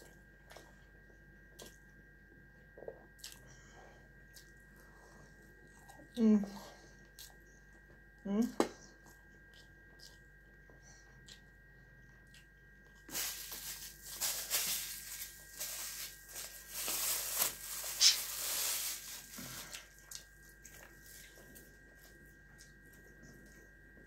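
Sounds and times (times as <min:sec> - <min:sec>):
chewing and tearing meat: 0:00.0 - 0:03.6, 0:07.0 - 0:08.1, 0:09.0 - 0:13.1, 0:19.7 - 0:23.9
crackly rustling noise: 0:13.0 - 0:23.5.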